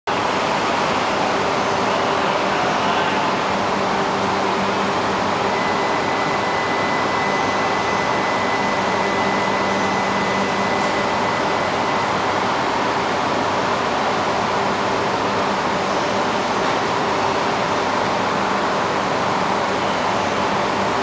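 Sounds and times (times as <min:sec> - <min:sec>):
train cooling fans hissing and humming: 0:00.1 - 0:21.0
faint high whine: 0:01.3 - 0:13.2.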